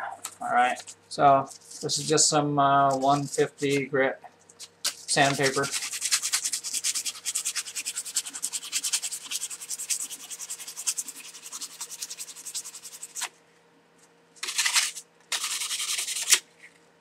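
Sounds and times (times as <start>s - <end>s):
sandpaper rubbing on metal blade: 4.9s - 13.3s, 14.4s - 16.4s
long sandpaper scrapes: 5.0s - 13.3s, 14.4s - 16.4s.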